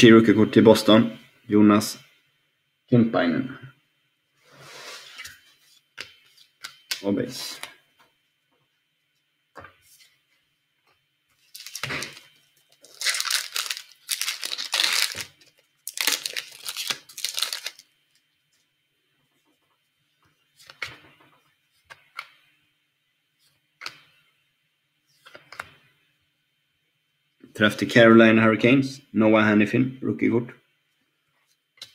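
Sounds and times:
cards rustling: 11.4s - 17.8s
card pack wrapper ripping: 11.5s - 17.8s.

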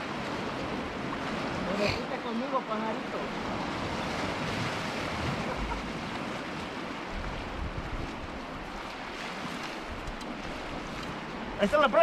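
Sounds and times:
rushing splashing water: 0.0s - 12.0s
wind buffeting microphone: 3.3s - 12.0s.

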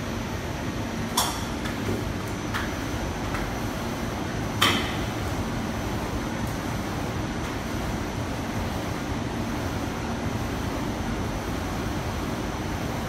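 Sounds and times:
machine mechanical hum: 0.0s - 13.0s.

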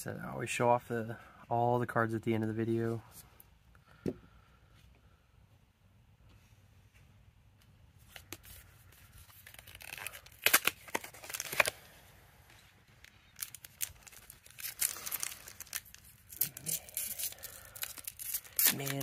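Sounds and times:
foil wrapper crinkling: 8.2s - 11.9s, 13.0s - 19.0s
foil wrapper tearing: 9.2s - 11.9s, 13.3s - 19.0s.

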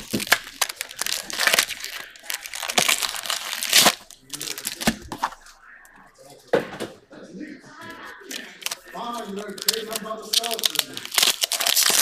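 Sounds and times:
foil wrapper crinkling and tearing: 0.0s - 5.1s, 8.3s - 12.0s.

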